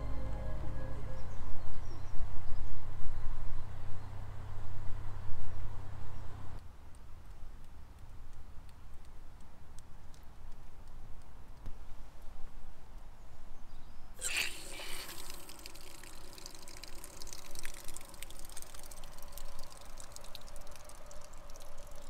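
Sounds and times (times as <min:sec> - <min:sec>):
water rushing into a hose: 0:14.2 - 0:22.0.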